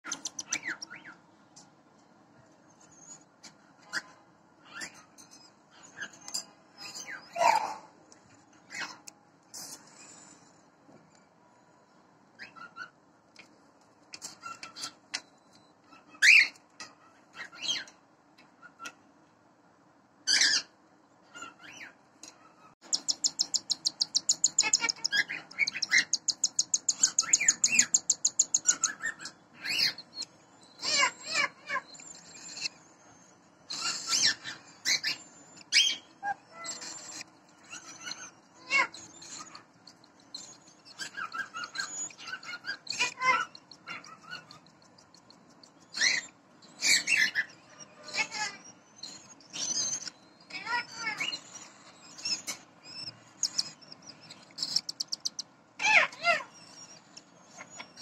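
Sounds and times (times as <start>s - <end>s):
chicks squeaky chirps: 0.0s - 1.2s, 22.6s - 58.0s
chicks pulsed begging calls: 22.9s - 29.0s.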